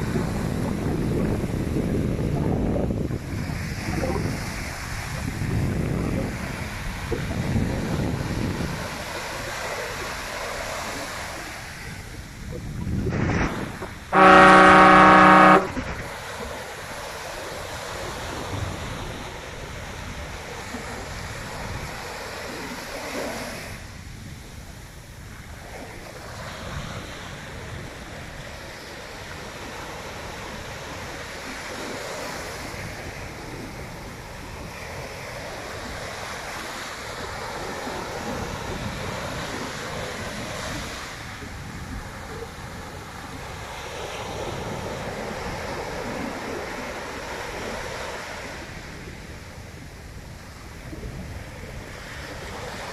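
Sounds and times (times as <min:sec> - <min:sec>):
surf washing: 0:00.0 - 0:52.9
wind noise: 0:00.0 - 0:52.9
boat horn blast: 0:14.1 - 0:16.0.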